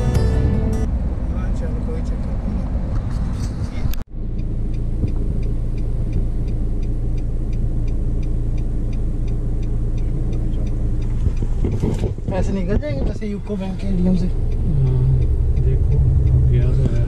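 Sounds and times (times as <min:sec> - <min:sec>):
car engine and tyre rumble: 0:00.0 - 0:17.0
faint regular ticking: 0:04.3 - 0:17.0.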